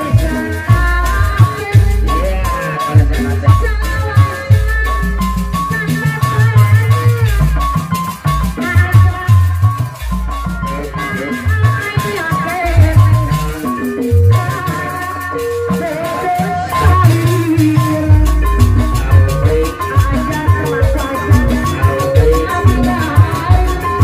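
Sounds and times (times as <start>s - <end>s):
hand drums beating: 0.0s - 24.0s
melody of short repeating notes: 0.0s - 24.0s.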